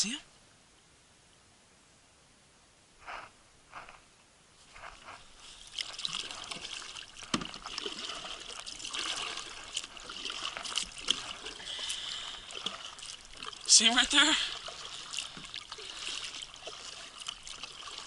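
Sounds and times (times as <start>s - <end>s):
paddle splashes: 4.8s - 18.0s
water dripping off paddle: 5.6s - 18.0s.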